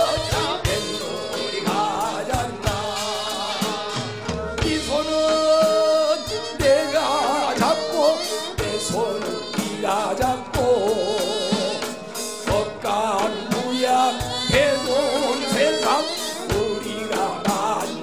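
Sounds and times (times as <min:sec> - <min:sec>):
drum strikes: 0:00.0 - 0:18.0
man singing folk-style tune: 0:04.6 - 0:11.8, 0:12.5 - 0:18.0.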